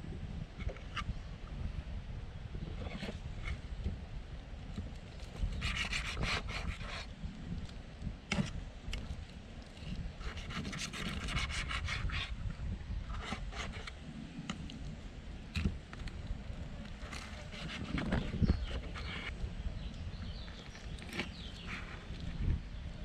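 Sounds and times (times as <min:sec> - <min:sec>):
blade scraping wooden board: 0:05.4 - 0:07.1, 0:10.2 - 0:12.4, 0:13.1 - 0:14.0, 0:17.0 - 0:19.3.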